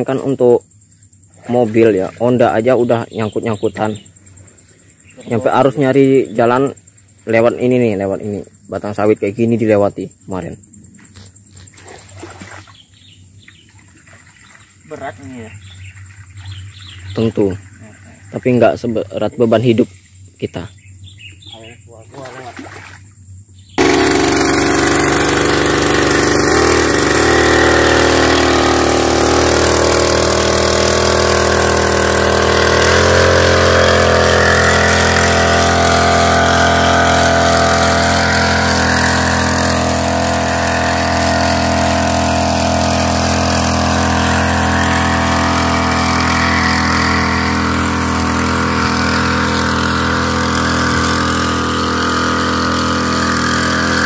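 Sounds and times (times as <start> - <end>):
small sprayer engine running: 23.8 - 54.0.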